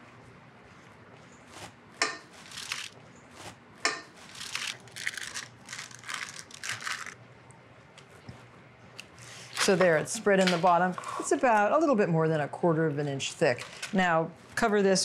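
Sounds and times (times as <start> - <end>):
parchment paper crinkling: 2.4 - 3.6, 4.2 - 7.2.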